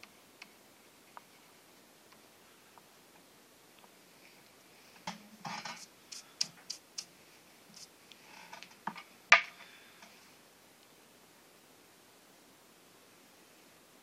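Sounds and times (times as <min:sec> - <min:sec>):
hand brushing paper: 0:05.6 - 0:07.1, 0:07.7 - 0:07.9.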